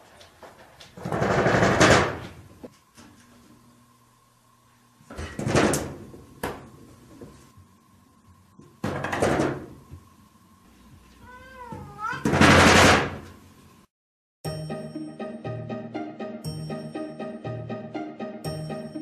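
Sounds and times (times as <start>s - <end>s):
glass sliding door banging: 1.0s - 2.4s, 8.8s - 9.7s, 12.2s - 13.2s
cat meowing: 11.2s - 12.4s.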